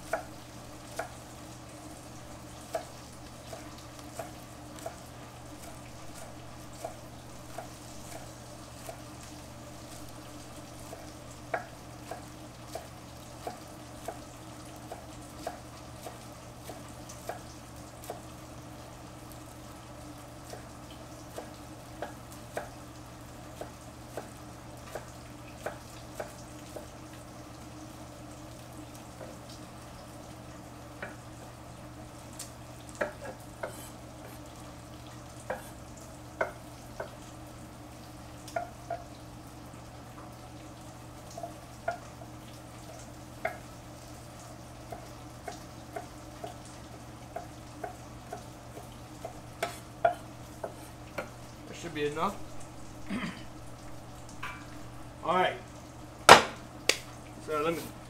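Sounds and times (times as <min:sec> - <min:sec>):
knife chopping on wooden board: 0:33.0 - 0:34.4, 0:35.5 - 0:35.8, 0:47.8 - 0:51.4, 0:56.3 - 0:57.0.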